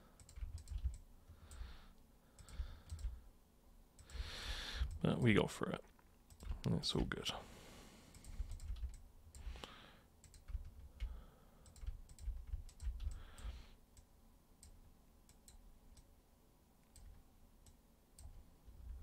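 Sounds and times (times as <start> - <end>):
mouse and keyboard clicking: 0.2 - 1.6, 2.4 - 3.2, 8.1 - 9.5, 10.2 - 16.1.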